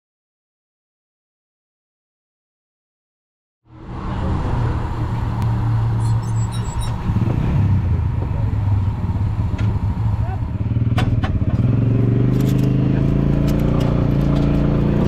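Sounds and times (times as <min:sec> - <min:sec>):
race car engine idling: 0:04.2 - 0:15.0.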